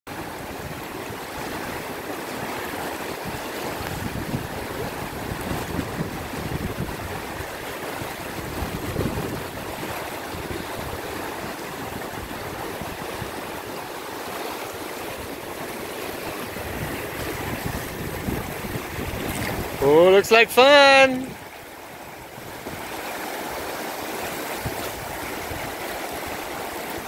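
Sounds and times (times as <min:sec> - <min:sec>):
river rushing: 0:00.1 - 0:27.0
wind on microphone: 0:03.2 - 0:13.7, 0:15.1 - 0:19.8, 0:24.5 - 0:27.0.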